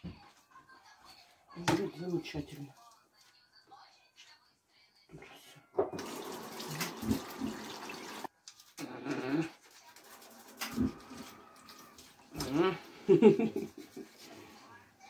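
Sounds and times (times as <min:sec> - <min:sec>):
water splashing: 0:05.9 - 0:08.3
fish rubbing and scraping underwater: 0:10.0 - 0:12.4.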